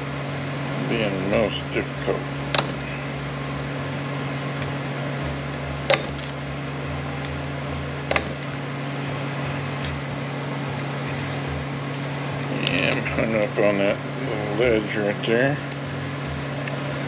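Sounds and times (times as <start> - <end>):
steady low hum: 0.0 - 17.0
sharp metallic clicks: 2.5 - 3.3.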